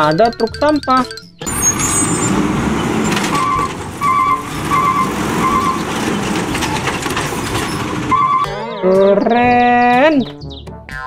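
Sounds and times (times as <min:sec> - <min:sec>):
hydraulic arm lifting cart: 0:01.4 - 0:08.5
garbage truck running: 0:01.4 - 0:08.6.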